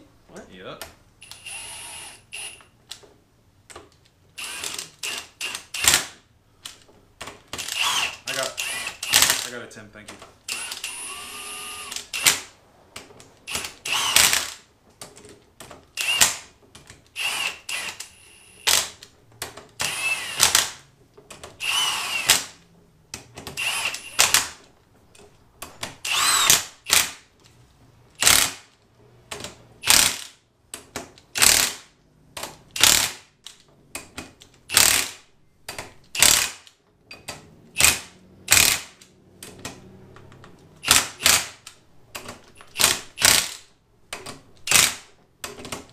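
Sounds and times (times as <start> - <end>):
cordless power tool whining: 1.2 - 2.6, 10.5 - 12.3, 19.8 - 20.6, 21.6 - 22.5, 23.6 - 24.4, 26.0 - 26.6.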